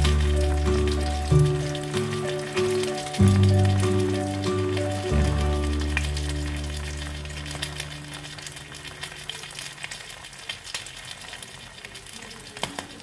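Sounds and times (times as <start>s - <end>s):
music chord: 0.0s - 8.7s
hot oil crackling and popping: 0.0s - 13.0s.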